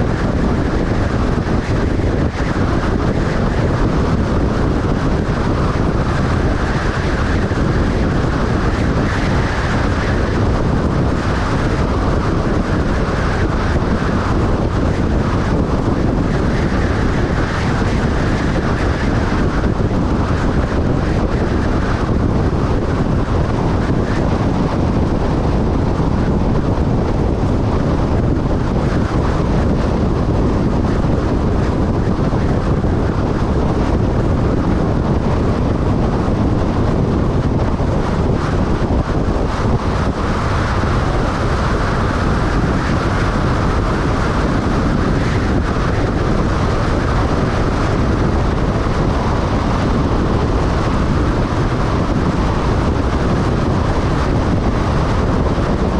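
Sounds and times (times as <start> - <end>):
vehicle road noise at highway speed: 0.0 - 55.9
wind buffeting microphone: 0.0 - 55.9.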